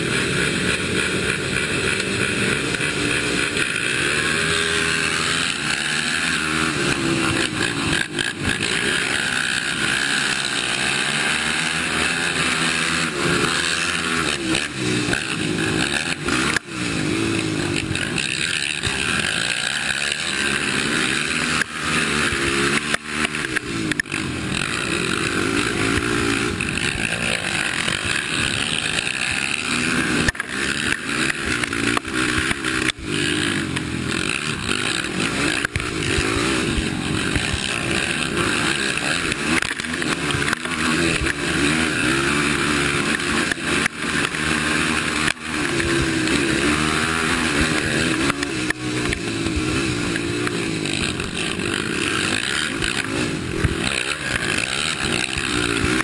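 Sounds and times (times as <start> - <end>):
quad engine revving: 0.0 - 56.0.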